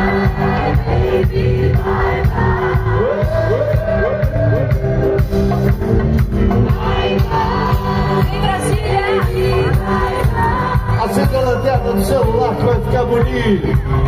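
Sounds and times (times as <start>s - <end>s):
live rock band playing: 0.0s - 14.0s.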